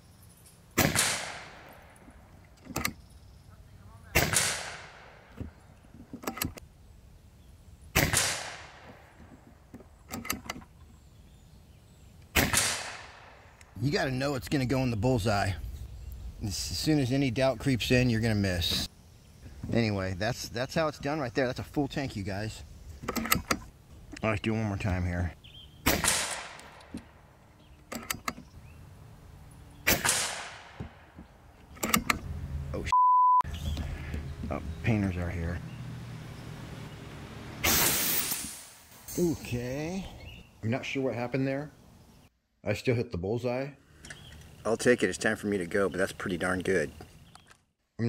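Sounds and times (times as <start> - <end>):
air rifle shot: 0.8 - 1.9, 4.2 - 5.3, 8.0 - 9.1, 12.3 - 13.4, 25.8 - 26.9, 29.8 - 31.1, 37.6 - 39.0.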